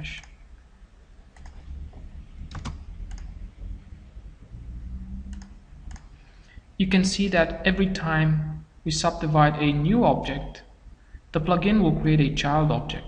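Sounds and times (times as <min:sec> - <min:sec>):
low steady background hum: 0:00.0 - 0:13.0
computer keyboard and mouse clicks: 0:01.3 - 0:01.7, 0:02.5 - 0:03.4, 0:05.3 - 0:06.1.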